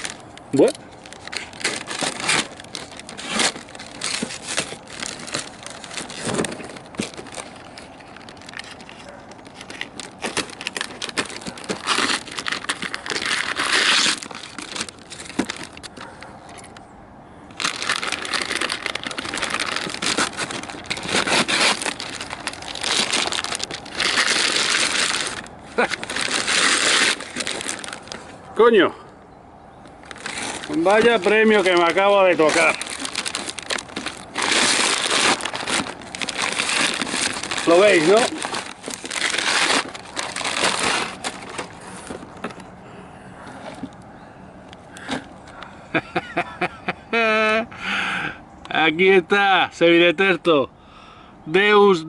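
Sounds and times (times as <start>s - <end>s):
paper and cardboard ripping: 0.0s - 16.1s, 17.6s - 28.3s, 30.0s - 42.5s.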